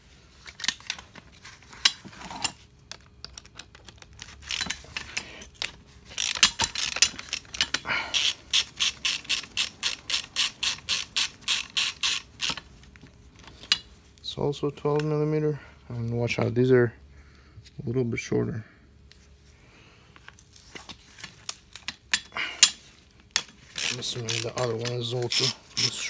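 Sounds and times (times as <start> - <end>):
metal tool clinking and scraping: 1.7 - 2.6, 4.3 - 12.7, 13.5 - 13.9, 21.8 - 26.0
ratchet wrench clicking: 4.4 - 12.7, 23.8 - 26.0.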